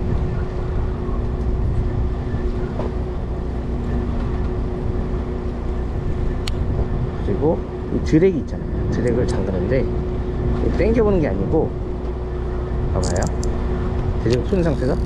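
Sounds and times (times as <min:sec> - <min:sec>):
boat engine running: 0:00.0 - 0:15.0
sharp click: 0:13.0 - 0:13.5.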